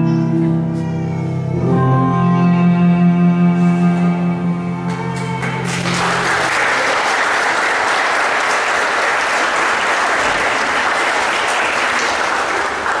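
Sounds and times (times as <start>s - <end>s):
music: 0.0s - 6.9s
audience applauding: 4.9s - 13.0s.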